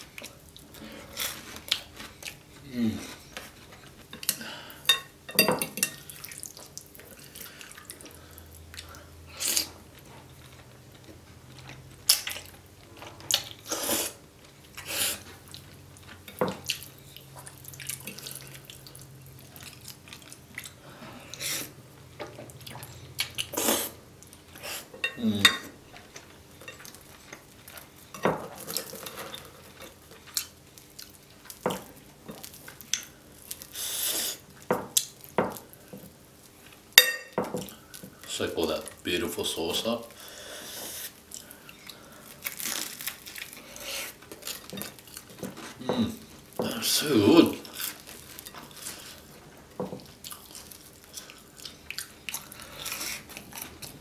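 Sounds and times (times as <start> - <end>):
cutlery clinking on ceramic plate: 4.9 - 6.0
slurping and chewing: 6.0 - 21.8, 22.4 - 28.0, 50.0 - 54.0.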